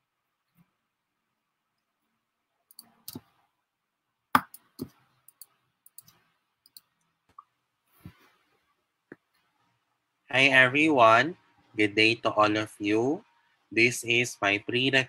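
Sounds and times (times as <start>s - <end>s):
mouse and keyboard clicks: 2.7s - 3.3s, 4.4s - 6.9s.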